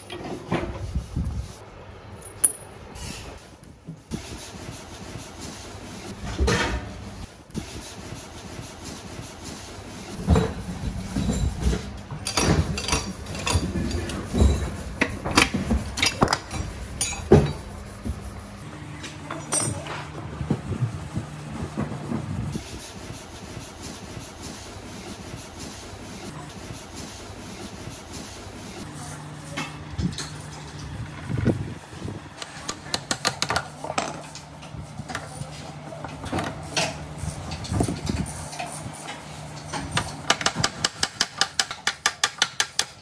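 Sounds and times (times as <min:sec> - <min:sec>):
steady mechanical hum: 0:00.0 - 0:43.0
metal tools clinking and scraping: 0:02.2 - 0:02.8, 0:11.1 - 0:14.8, 0:15.4 - 0:17.6, 0:19.2 - 0:20.1.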